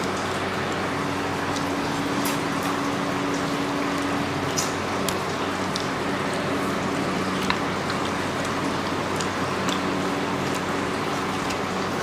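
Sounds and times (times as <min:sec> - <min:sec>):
mouths chewing: 0:06.7 - 0:11.7.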